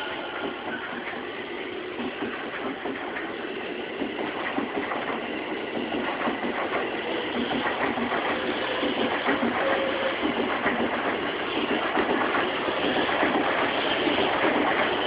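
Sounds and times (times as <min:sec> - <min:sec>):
train knocks: 0:00.0 - 0:15.0
train wheels on rails: 0:00.0 - 0:15.0.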